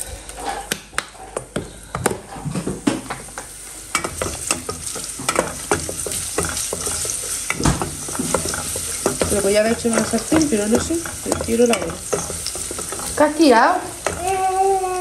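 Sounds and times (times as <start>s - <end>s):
garlic sizzling in oil: 2.8s - 15.0s
wooden spoon knocking pot: 3.9s - 14.5s.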